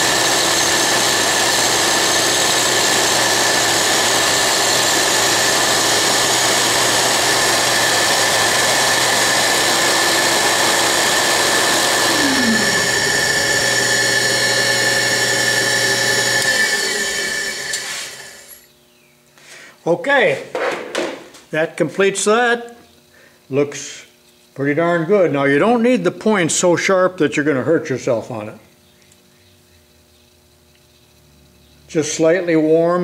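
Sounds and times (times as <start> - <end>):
grinder and lathe whining: 0.0 - 18.7
grinding wheel against metal: 0.0 - 18.7.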